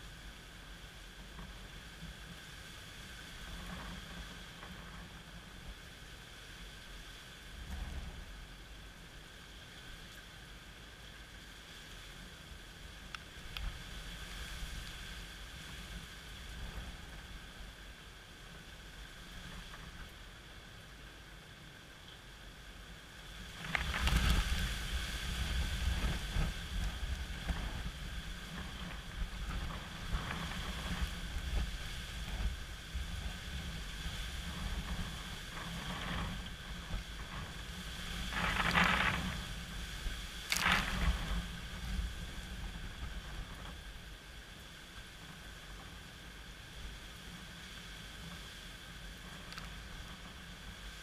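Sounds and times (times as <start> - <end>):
rain: 0.0 - 51.0
strong gusting wind: 23.1 - 45.8
wind buffeting microphone: 23.3 - 48.5.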